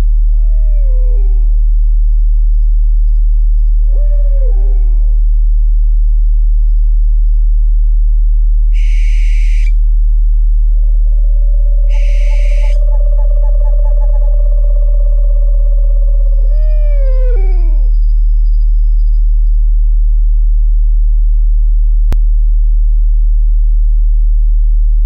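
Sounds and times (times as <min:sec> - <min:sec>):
deep meditation tone: 0:05.3 - 0:19.7
owl calls: 0:08.7 - 0:09.8, 0:10.8 - 0:17.9
owl screeches: 0:08.8 - 0:09.8, 0:11.0 - 0:17.9
steady higher tone: 0:08.8 - 0:17.0.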